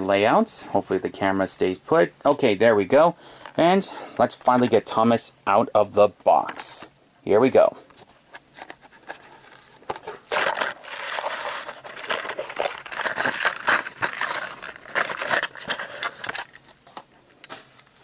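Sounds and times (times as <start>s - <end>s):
plastic packaging crinkling: 8.3s - 18.0s.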